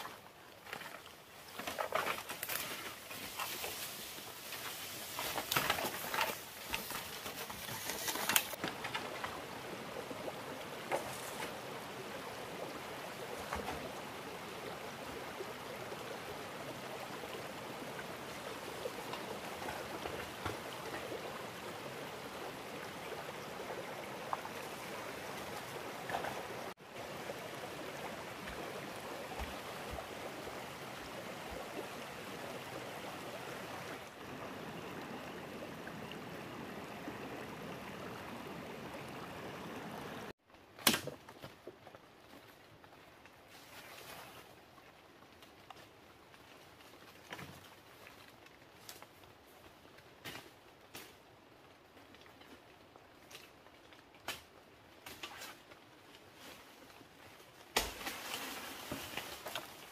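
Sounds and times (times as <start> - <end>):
stream of water flowing: 0.0 - 40.4.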